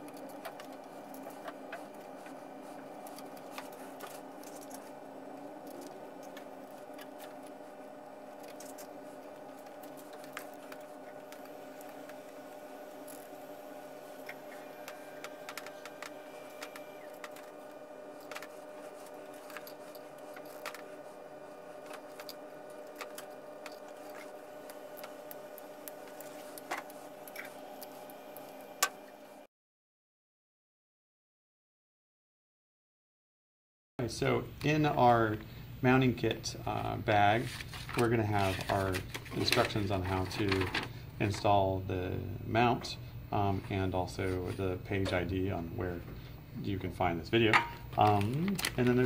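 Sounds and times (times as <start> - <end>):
electrical hum: 0.0 - 29.5, 34.0 - 49.0
plastic rustling: 37.3 - 41.0, 47.4 - 49.0.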